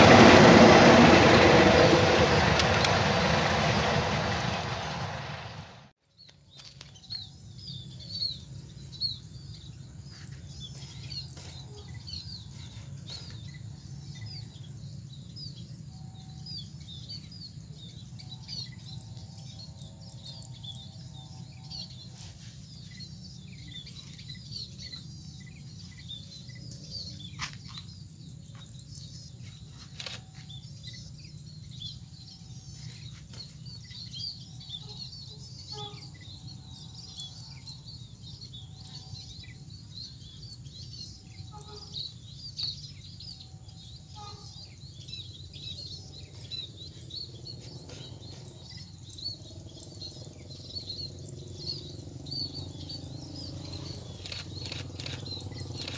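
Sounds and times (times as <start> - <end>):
low background rumble: 0.0 - 5.9
small birds chirping: 6.1 - 55.9
sharp clicks: 54.1 - 55.9.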